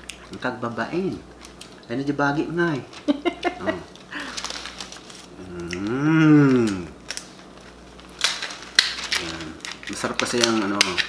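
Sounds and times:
crab shells cracking: 1.3s - 1.9s, 2.9s - 11.0s
person humming: 5.4s - 7.0s.

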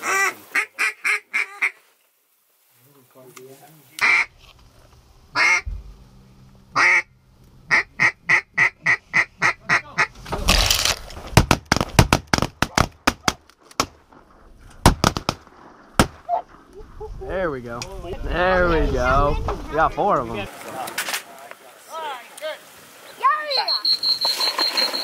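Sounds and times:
duck call quacks: 0.0s - 1.8s, 4.0s - 4.3s, 5.4s - 5.6s, 6.8s - 7.1s, 7.7s - 10.1s
rustling noise: 10.0s - 12.6s, 13.5s - 17.1s
shotgun shots: 14.8s - 15.4s.

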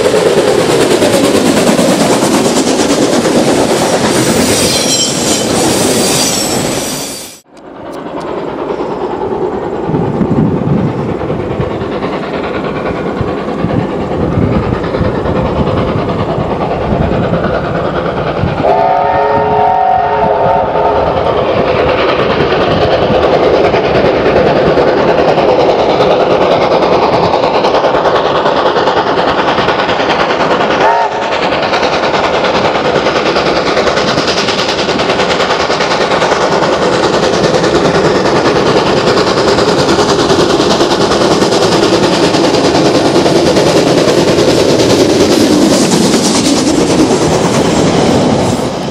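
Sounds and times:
locomotive chime whistle: 4.5s - 7.2s
steam locomotive exhaust: 9.7s - 48.9s.

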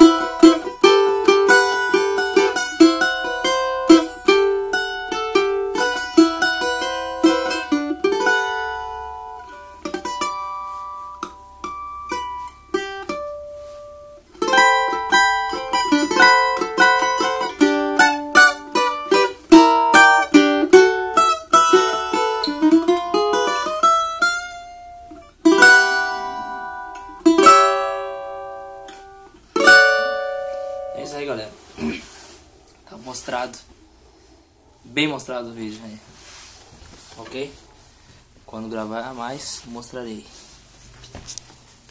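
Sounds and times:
cavaquinho strummed and picked: 0.0s - 32.2s.

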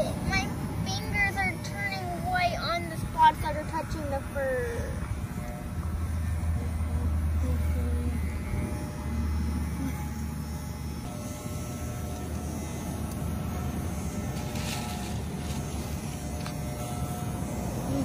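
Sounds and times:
electric pet clippers buzzing: 0.0s - 18.0s.

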